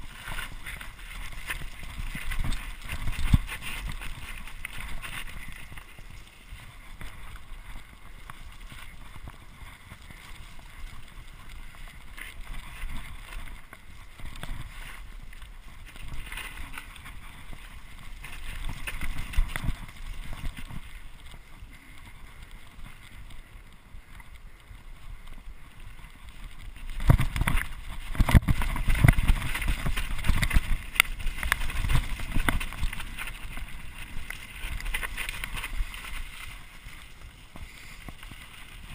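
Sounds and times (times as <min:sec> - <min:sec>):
tyres on wet dirt: 0:00.0 - 0:38.9
wind on microphone: 0:25.0 - 0:38.9.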